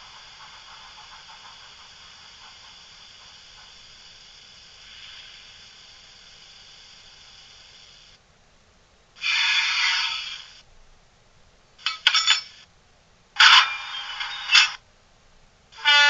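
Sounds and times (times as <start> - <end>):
short bursts of locomotive sound: 0.0 - 8.1, 9.2 - 10.6, 15.8 - 16.0
loud locomotive hiss: 0.0 - 8.2, 9.2 - 10.7, 13.4 - 14.8, 15.7 - 16.0
faint steady hiss: 0.0 - 16.0.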